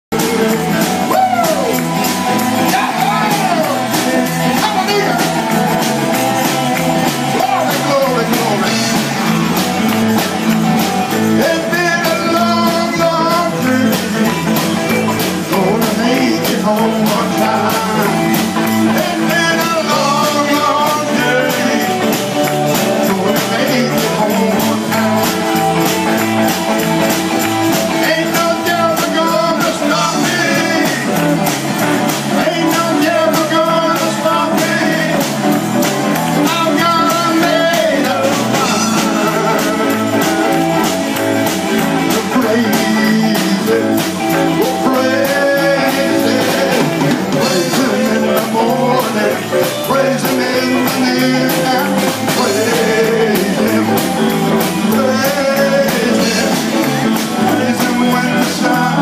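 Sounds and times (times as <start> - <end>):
live band playing guitars: 0.1 - 59.0
man singing into microphone: 7.2 - 9.0, 11.2 - 25.2, 27.8 - 31.5, 32.2 - 35.5, 36.3 - 40.6, 41.9 - 59.0.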